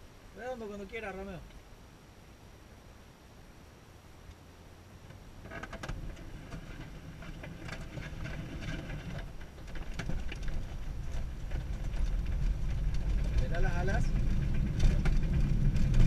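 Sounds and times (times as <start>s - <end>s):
glider rattling over grass: 5.1s - 16.0s.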